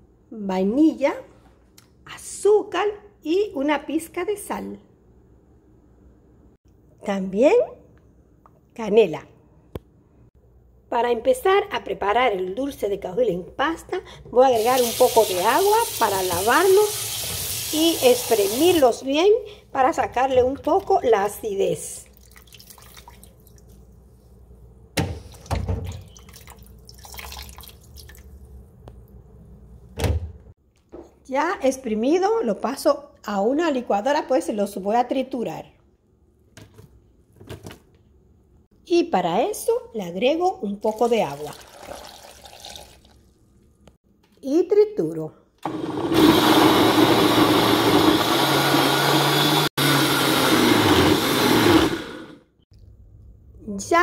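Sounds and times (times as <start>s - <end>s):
wet squelching and splashing: 22.0s - 23.8s, 25.4s - 28.4s
blender running: 45.6s - 52.4s.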